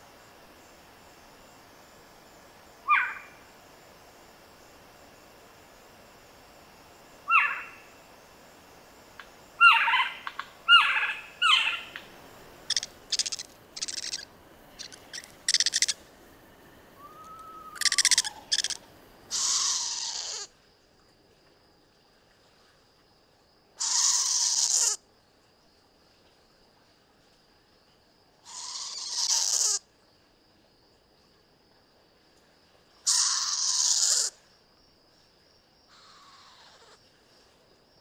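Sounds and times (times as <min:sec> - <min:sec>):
owl screeching: 0:02.9 - 0:03.3, 0:07.3 - 0:07.7, 0:12.7 - 0:14.2, 0:14.8 - 0:16.0, 0:17.0 - 0:20.5, 0:23.8 - 0:25.0, 0:28.5 - 0:29.8, 0:33.1 - 0:34.3, 0:35.9 - 0:37.0.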